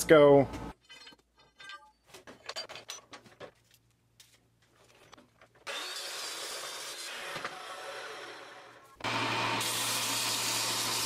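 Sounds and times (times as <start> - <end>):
metal bars clinking and rattling: 0.8 - 3.7.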